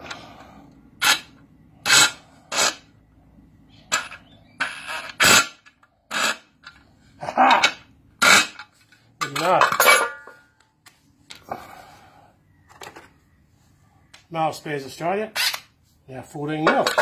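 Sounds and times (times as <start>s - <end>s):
metal parts clinking on concrete: 7.4s - 10.7s, 16.5s - 17.0s.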